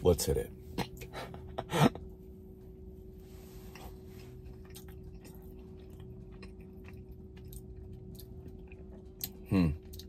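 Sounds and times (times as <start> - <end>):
steady low hum: 0.0 - 10.0
person chewing cookie: 3.7 - 10.0.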